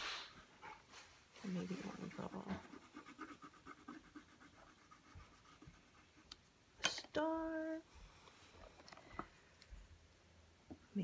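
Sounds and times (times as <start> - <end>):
pen scratching on paper: 1.5 - 6.4.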